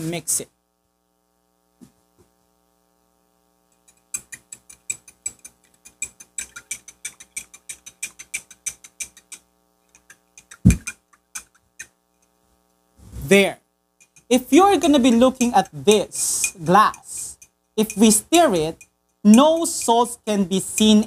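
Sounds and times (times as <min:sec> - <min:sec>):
dull thump: 0:10.6 - 0:10.9.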